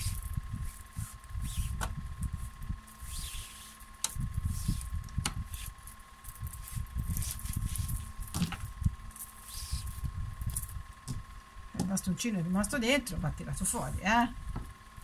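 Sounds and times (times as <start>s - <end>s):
fabric rustling and rubbing: 0.0s - 1.8s, 2.4s - 10.6s
faint high hum: 0.0s - 15.0s.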